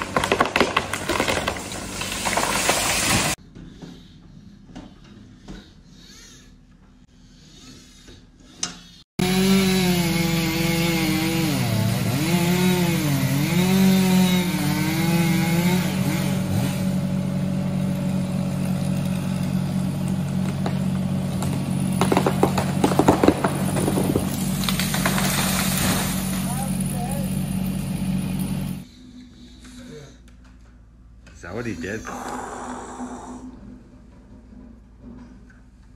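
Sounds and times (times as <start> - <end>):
tree falling with cracking branches: 0.0 - 3.4, 18.5 - 27.8
chainsaw revving and cutting: 9.2 - 28.9
diesel engine running: 15.6 - 29.0.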